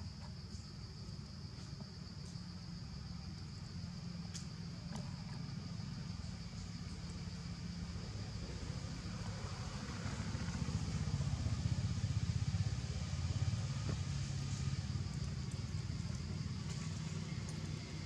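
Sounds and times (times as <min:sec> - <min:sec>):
motorcycle engine passing by: 0:07.5 - 0:18.0.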